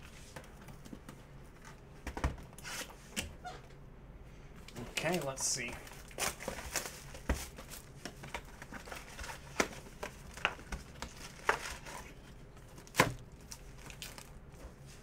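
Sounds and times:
foil card packs rustling: 4.7s - 15.0s.

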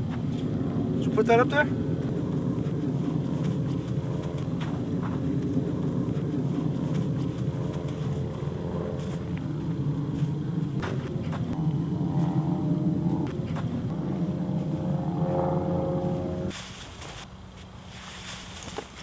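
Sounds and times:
motor running: 0.0s - 16.5s
footsteps on loose dirt: 2.0s - 9.4s, 10.0s - 11.6s.

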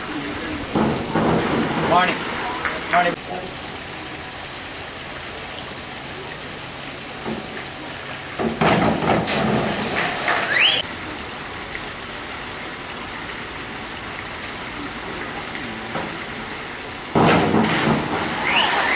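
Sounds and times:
divers splashing into water: 0.0s - 3.2s, 7.0s - 10.9s, 16.1s - 18.9s
rushing water hiss: 0.0s - 18.9s
cheering: 18.4s - 18.9s.

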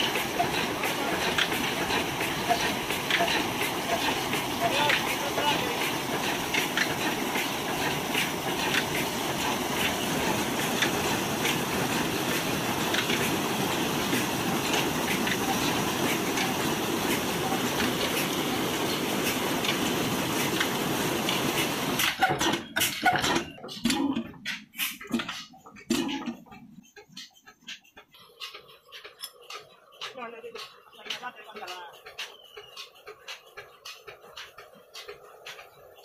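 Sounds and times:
sharp clicks and knocks: 0.0s - 13.4s, 14.0s - 35.9s
water gushing from a pipe: 0.0s - 26.4s.

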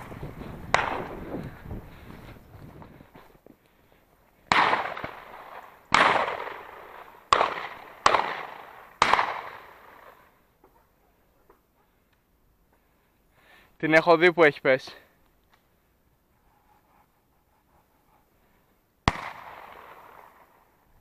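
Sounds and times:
shotgun shots with echo: 0.7s - 1.2s, 4.5s - 10.0s, 19.1s - 20.5s.

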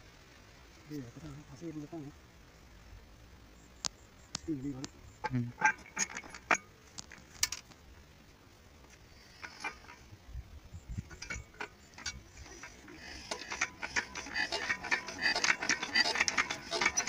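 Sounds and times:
engine hand-cranking clanks: 5.6s - 6.7s, 9.3s - 10.1s, 11.1s - 17.0s.

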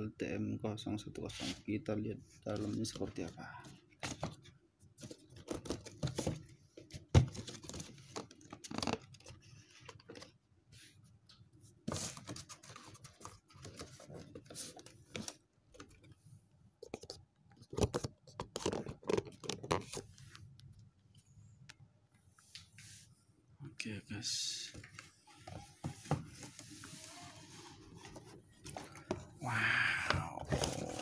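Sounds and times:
cardboard and paper rustling: 2.5s - 10.4s, 11.8s - 16.2s, 24.7s - 29.4s, 30.1s - 31.0s.

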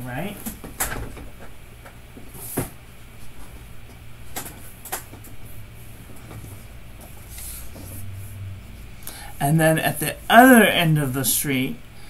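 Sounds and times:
low steady hum: 2.9s - 12.0s.

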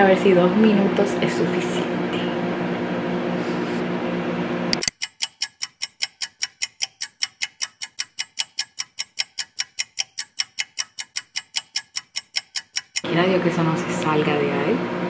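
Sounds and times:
microwave oven humming: 0.0s - 5.0s, 12.9s - 15.0s
clock ticking: 4.8s - 13.1s.

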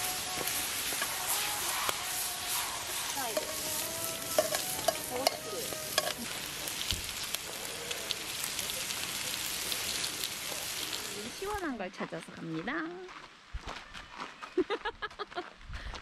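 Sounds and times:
meat sizzling in a frying pan: 0.0s - 11.8s
metal tongs scraping pan: 0.9s - 6.4s.

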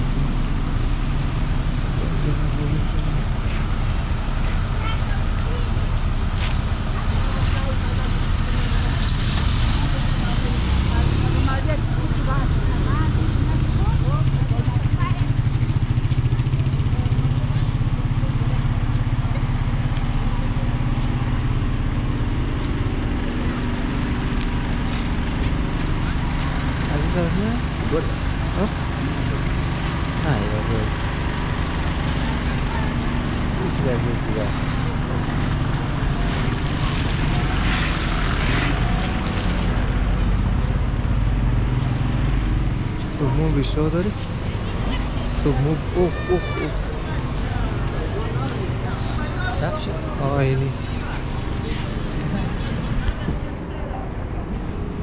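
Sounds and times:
small engine idling: 11.9s - 37.6s.

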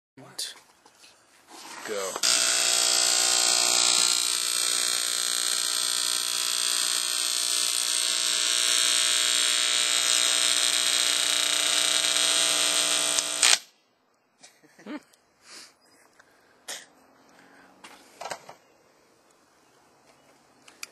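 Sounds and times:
speaker buzzing tone: 2.1s - 13.6s.

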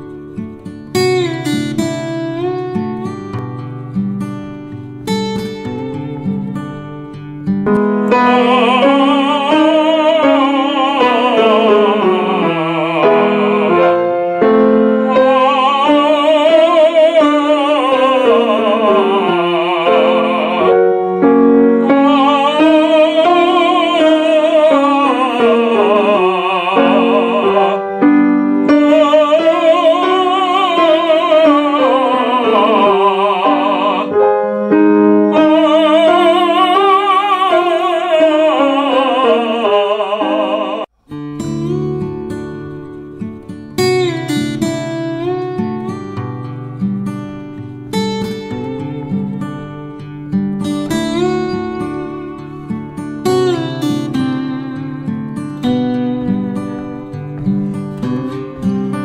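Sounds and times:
tenor singing with vibrato: 7.7s - 41.0s.

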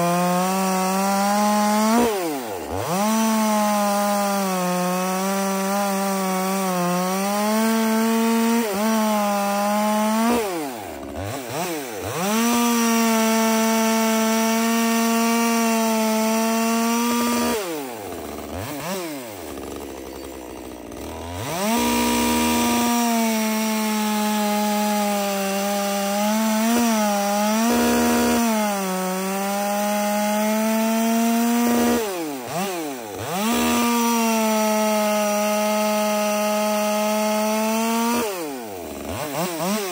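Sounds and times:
chainsaw cutting logs: 0.0s - 39.9s.

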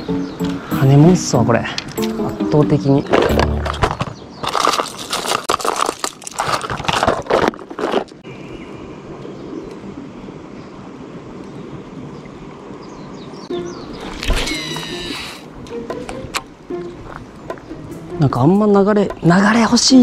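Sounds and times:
plastic lures clattering in box: 3.1s - 8.2s
faint outdoor hiss: 8.2s - 20.0s.

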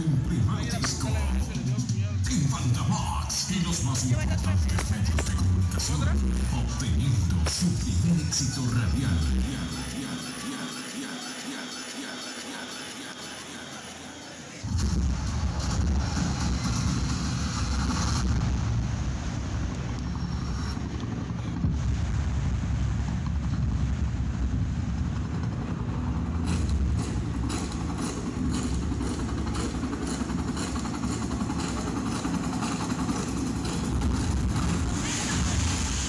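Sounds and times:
bass-heavy dance music rumble: 0.0s - 11.0s.

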